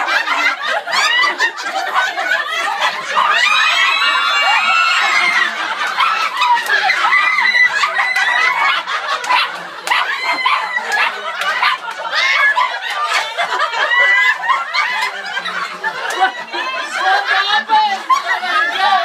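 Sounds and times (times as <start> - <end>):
people laughing and chattering: 0.0 - 19.0.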